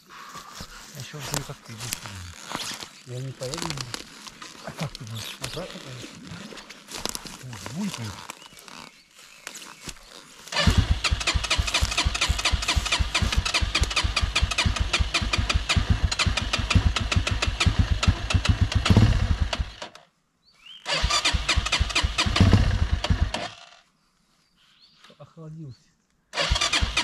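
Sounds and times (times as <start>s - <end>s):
motorcycle engine cranking: 10.5s - 20.0s, 20.9s - 23.8s, 26.4s - 27.0s.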